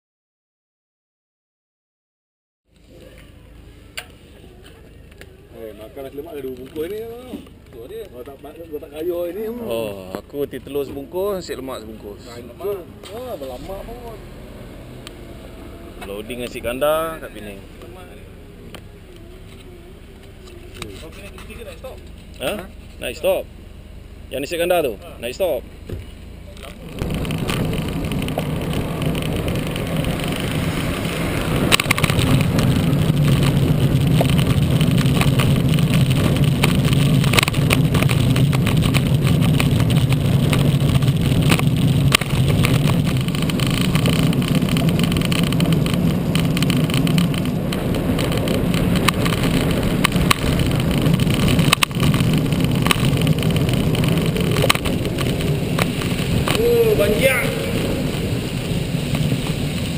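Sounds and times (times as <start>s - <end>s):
tyre noise on wet road: 2.7s - 59.9s
wind rushing over microphone: 26.8s - 59.9s.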